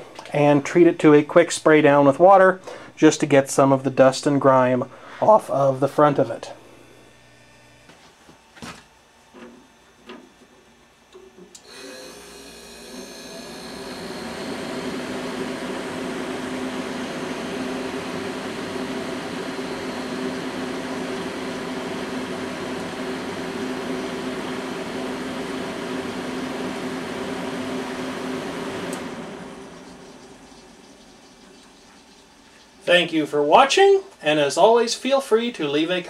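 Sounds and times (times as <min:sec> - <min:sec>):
dehumidifier fan humming: 0:00.0 - 0:36.0.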